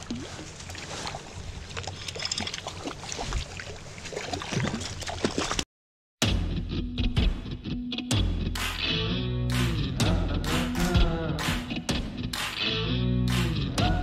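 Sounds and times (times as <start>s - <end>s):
water sound: 0.0s - 5.6s
music: 6.2s - 14.0s.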